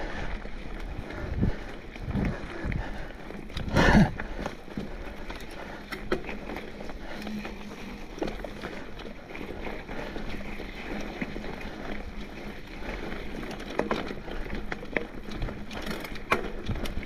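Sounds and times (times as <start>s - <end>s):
bike rattles and ticks: 0.0s - 17.0s
bike tyres on dirt trail: 0.0s - 17.0s
wind on microphone: 1.1s - 4.2s.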